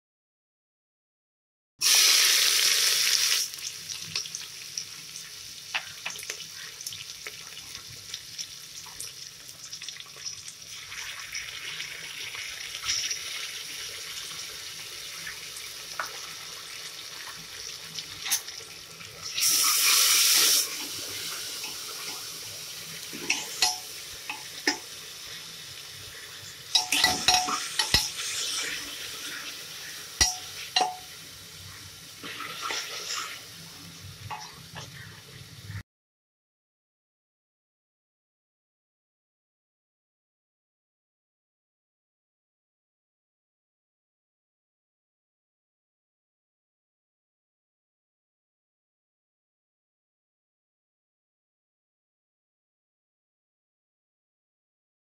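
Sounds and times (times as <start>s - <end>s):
onions sizzling in hot oil: 1.8s - 35.8s.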